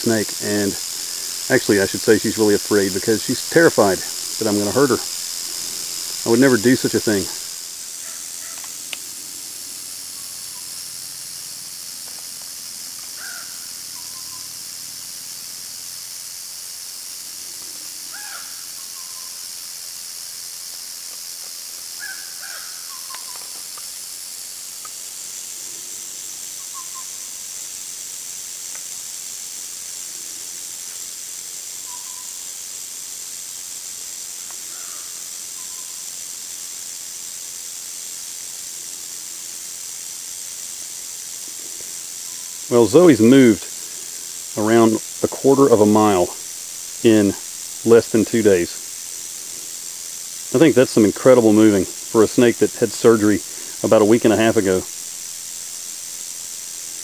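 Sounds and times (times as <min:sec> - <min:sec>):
rattlesnake rattling: 0:00.0 - 0:57.0.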